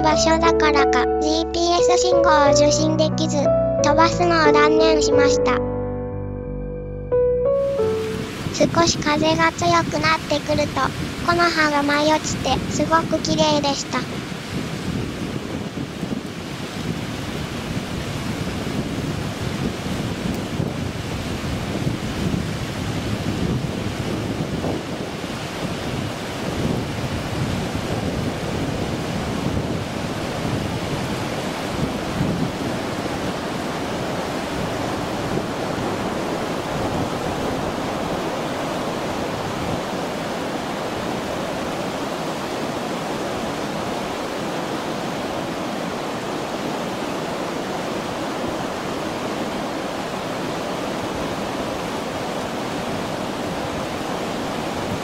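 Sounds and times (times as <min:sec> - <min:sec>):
river water rushing: 0:07.8 - 0:55.0
wind buffeting microphone: 0:08.3 - 0:45.5.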